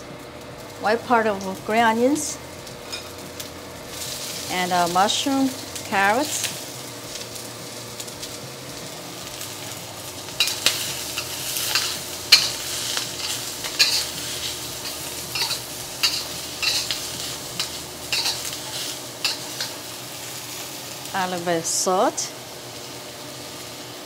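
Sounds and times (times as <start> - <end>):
vegetables sizzling in hot oil: 0.0 - 24.0
spatula scraping a wok: 9.6 - 19.9.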